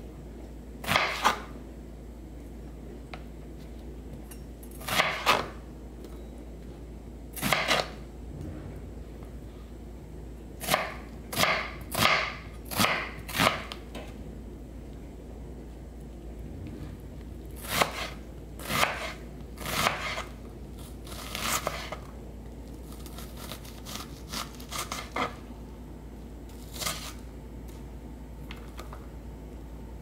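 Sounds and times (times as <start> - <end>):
knife slicing onion on board: 0.8 - 1.5, 4.8 - 5.6, 7.4 - 8.0, 10.6 - 13.8, 17.6 - 20.4, 21.0 - 22.0, 23.0 - 25.4, 26.6 - 27.2.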